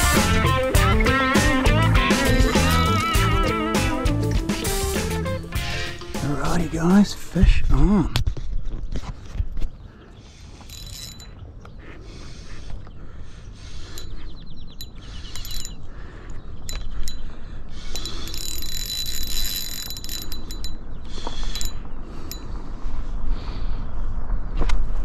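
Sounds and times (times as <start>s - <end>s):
fishing reel gears whirring: 2.4s - 3.5s, 10.7s - 11.4s, 13.9s - 14.2s, 14.8s - 15.8s, 16.6s - 22.4s.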